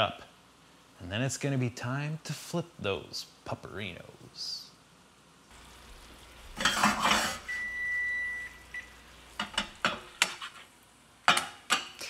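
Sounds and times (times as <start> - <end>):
spatula scraping frying pan: 6.5 - 7.5, 9.3 - 11.9
cooking timer beep: 7.3 - 9.1.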